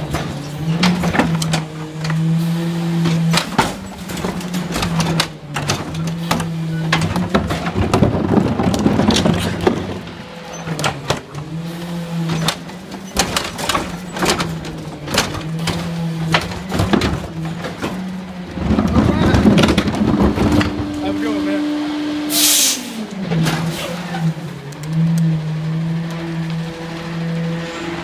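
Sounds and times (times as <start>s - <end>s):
trash falling into hopper: 0.0s - 11.6s, 12.2s - 21.1s, 23.1s - 24.4s
trash carts banging and clattering: 0.0s - 28.0s.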